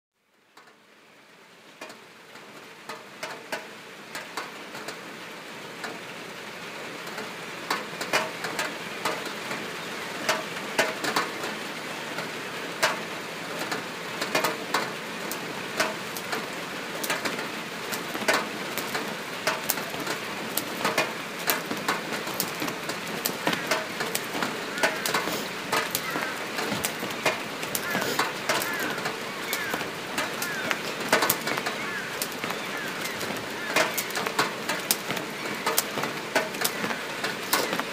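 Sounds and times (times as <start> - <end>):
sharp ticks and crackles: 1.8 - 5.0, 7.0 - 37.9
hiss: 24.0 - 28.6.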